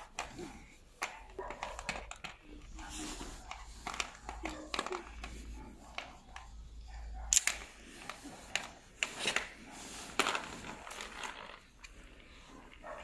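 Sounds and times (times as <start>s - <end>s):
crossbow string clicking and rattling: 7.3s - 9.5s.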